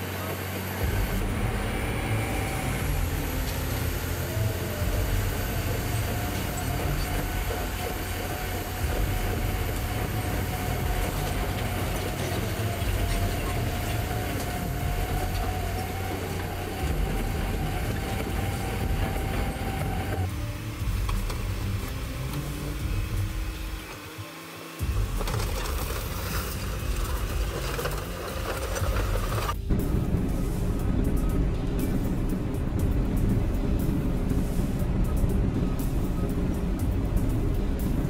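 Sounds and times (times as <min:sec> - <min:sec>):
bulldozer diesel engine rumbling: 0:00.0 - 0:24.0, 0:24.8 - 0:38.0
engine whine: 0:00.0 - 0:38.0.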